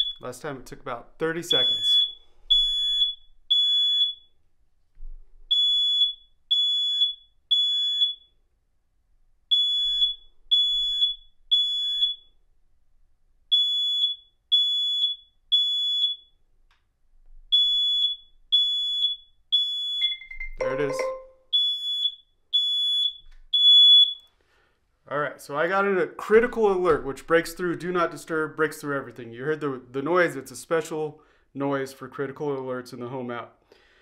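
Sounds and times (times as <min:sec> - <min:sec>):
smoke alarm beeps: 0:00.0 - 0:00.3, 0:01.5 - 0:04.4, 0:05.5 - 0:08.4, 0:09.5 - 0:12.4, 0:13.5 - 0:16.4, 0:17.5 - 0:24.3.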